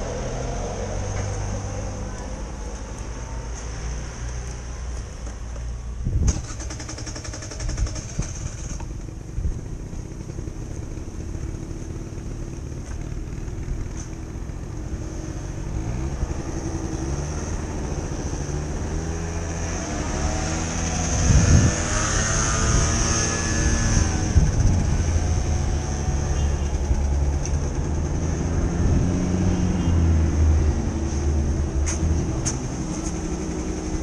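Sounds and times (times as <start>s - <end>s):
scooter engine running: 6.2s - 29.9s, 32.6s - 34.0s.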